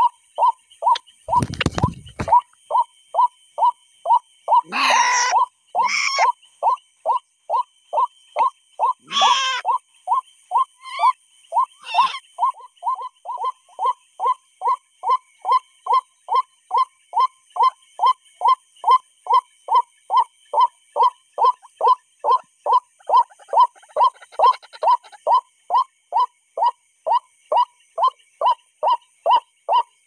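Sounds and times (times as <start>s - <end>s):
waterhen calling: 4.5s - 6.4s, 8.8s - 9.8s, 10.8s - 13.6s, 21.4s - 25.2s.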